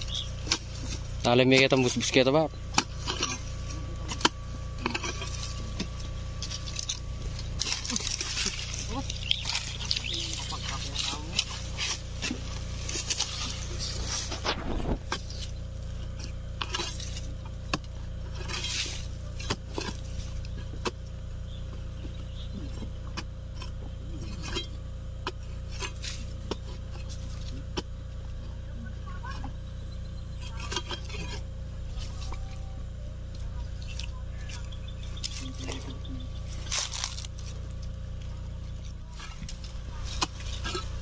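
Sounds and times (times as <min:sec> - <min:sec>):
spade chopping stony soil: 0:00.1 - 0:21.0, 0:39.2 - 0:41.0.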